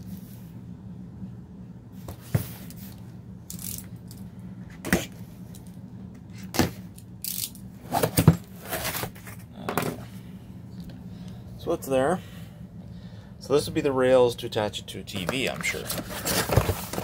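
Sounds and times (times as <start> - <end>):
faint low hum: 0.0 - 17.0
cardboard box scraping and rustling: 7.8 - 9.4, 15.7 - 17.0.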